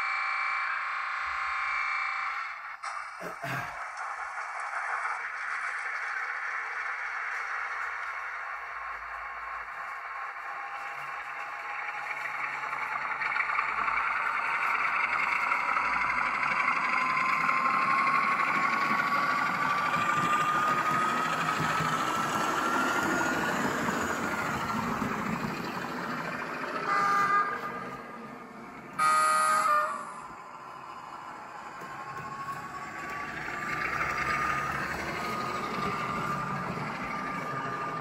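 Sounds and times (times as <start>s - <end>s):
model diesel engine sound: 0.0s - 38.0s
thin rising whine: 0.0s - 38.0s
locomotive horn blast: 26.9s - 28.0s, 29.0s - 30.3s.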